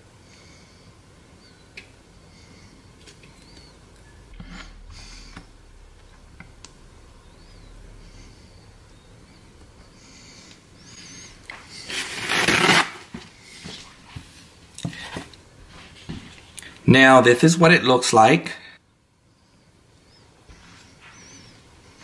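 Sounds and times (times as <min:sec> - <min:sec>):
loud scraping: 0:04.2 - 0:08.8, 0:10.0 - 0:13.1.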